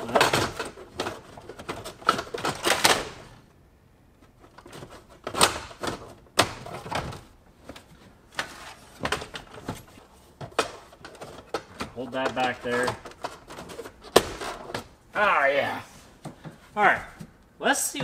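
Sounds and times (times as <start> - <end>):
clicks and knocks of handling parts: 0.0 - 3.6, 4.2 - 15.0.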